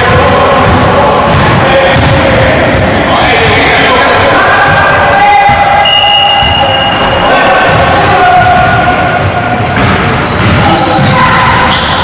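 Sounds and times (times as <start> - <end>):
players' voices echoing: 0.0 - 12.0
basketballs bouncing on wooden floor: 0.1 - 3.0, 9.7 - 11.5.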